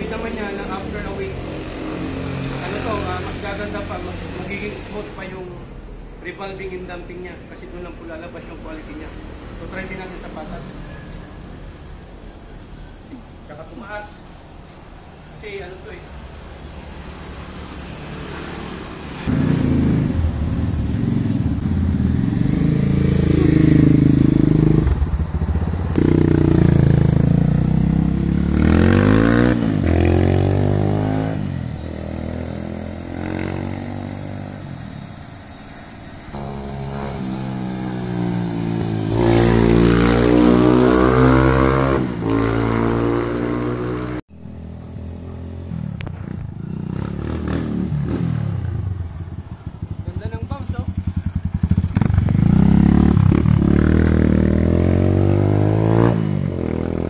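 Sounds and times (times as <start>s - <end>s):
dirt bike engine revving: 26.0s - 34.6s, 36.3s - 44.2s, 50.2s - 57.0s.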